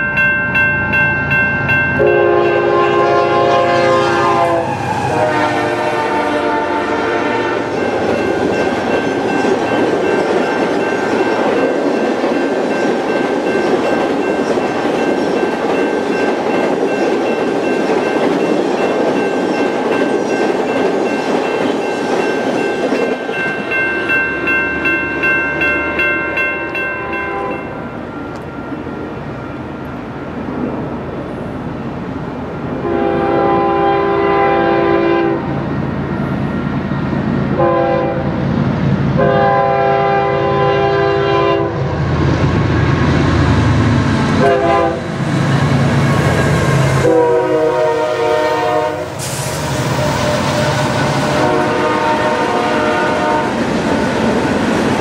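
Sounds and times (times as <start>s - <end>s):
crossing bell ringing: 0.0s - 4.6s, 5.5s - 30.4s
locomotive horn blasts: 2.0s - 7.8s, 27.0s - 27.8s, 32.8s - 35.5s, 37.6s - 38.3s, 39.2s - 41.9s, 44.4s - 45.2s, 46.9s - 49.2s, 50.2s - 53.6s
train wheels rolling: 4.2s - 32.1s, 42.0s - 55.0s.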